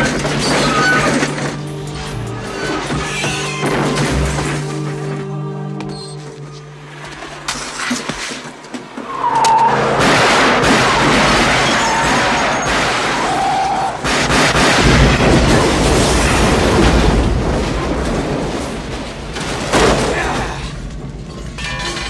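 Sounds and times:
tire squeals: 0:09.0 - 0:10.0, 0:11.5 - 0:14.0.

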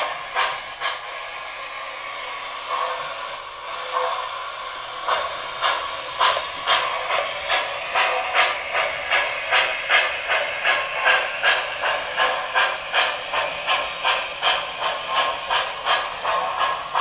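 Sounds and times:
model steam locomotive chuffing: 0:00.0 - 0:17.0.

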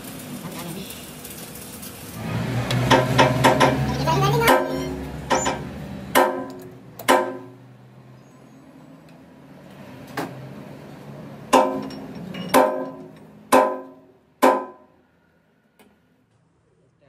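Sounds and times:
metallic clanks: 0:11.5 - 0:14.8.

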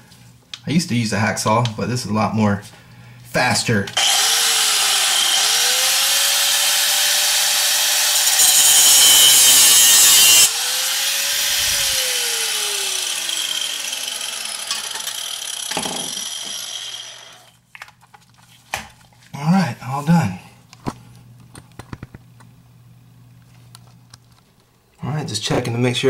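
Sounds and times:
angle grinder cutting metal bolt: 0:04.0 - 0:17.5.

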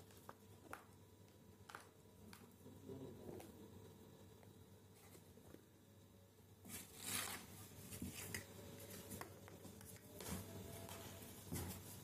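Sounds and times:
kittens scuffling: 0:06.6 - 0:12.0.

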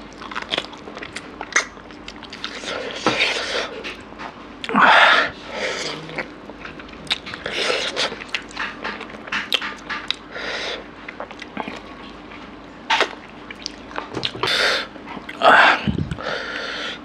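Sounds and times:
wet chewing and lip-smacking: 0:00.0 - 0:03.4, 0:05.8 - 0:10.3, 0:11.1 - 0:16.7.

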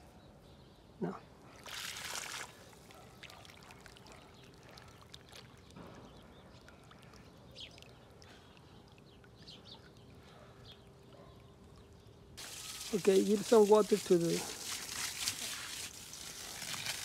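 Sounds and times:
water trickling from hose: 0:01.6 - 0:05.8, 0:12.4 - 0:17.0
small drips and splashes: 0:01.6 - 0:10.3, 0:11.7 - 0:17.0.

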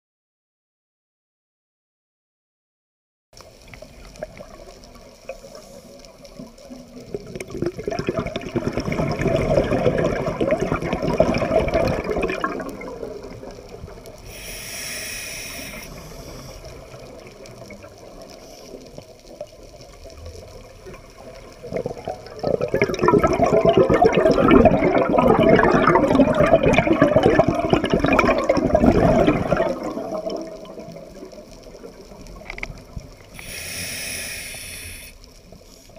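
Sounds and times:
exhaled bubbles underwater: 0:03.5 - 0:35.6
regulator inhale hiss: 0:05.3 - 0:06.3, 0:14.2 - 0:17.2, 0:18.3 - 0:19.0, 0:33.3 - 0:35.9.

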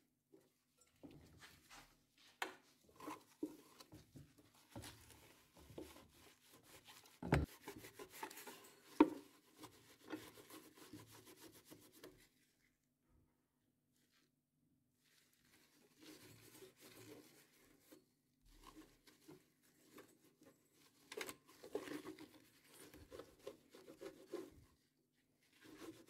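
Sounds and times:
cloth scratchy wiping on metal: 0:01.4 - 0:12.8, 0:15.0 - 0:18.0, 0:21.6 - 0:26.0.

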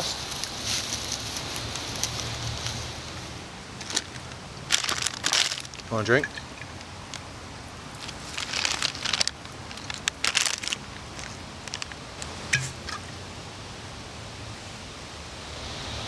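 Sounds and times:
paper bag crinkling: 0:03.8 - 0:06.1, 0:08.0 - 0:12.0.

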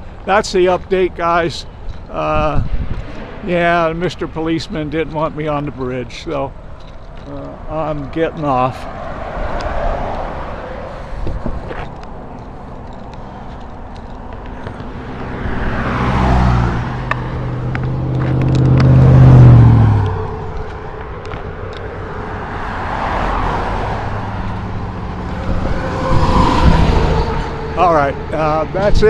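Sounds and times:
road traffic passing: 0:00.0 - 0:29.0
low engine drone passing: 0:14.9 - 0:29.0.

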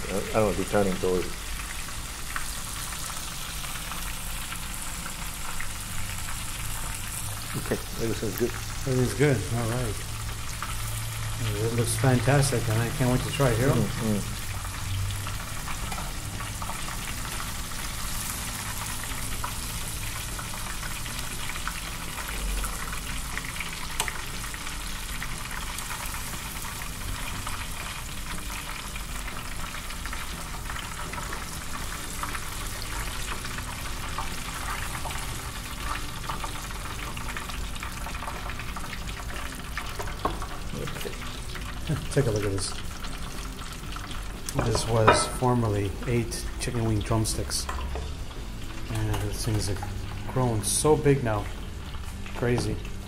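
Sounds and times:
oil bubbling and sizzling: 0:00.0 - 0:53.0.

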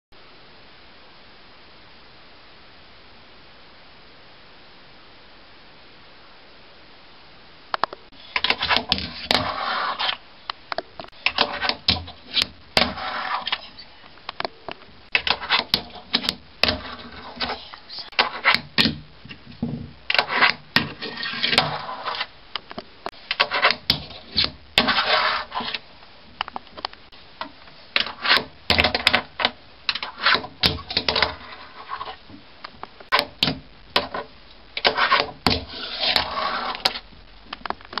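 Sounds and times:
fingerboard scraping on concrete: 0:08.2 - 0:10.2, 0:11.2 - 0:13.8, 0:15.1 - 0:17.6, 0:18.2 - 0:18.8, 0:20.1 - 0:22.3, 0:23.3 - 0:25.8, 0:28.0 - 0:32.2, 0:34.0 - 0:37.0.

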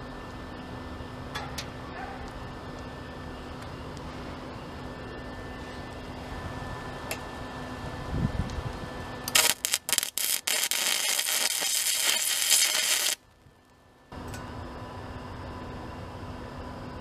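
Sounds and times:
welder arc: 0:09.2 - 0:13.2.

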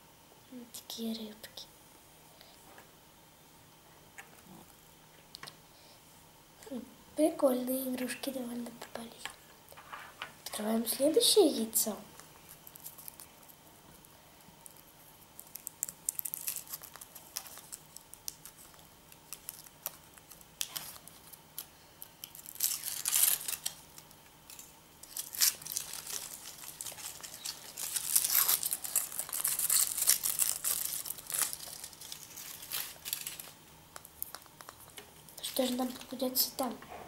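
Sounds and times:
foil wrapper crinkling and tearing: 0:12.2 - 0:13.6, 0:14.6 - 0:36.2.

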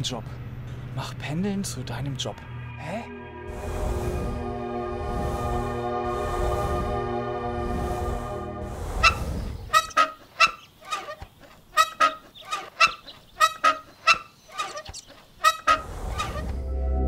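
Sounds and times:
background music: 0:00.5 - 0:09.2, 0:16.2 - 0:17.0.

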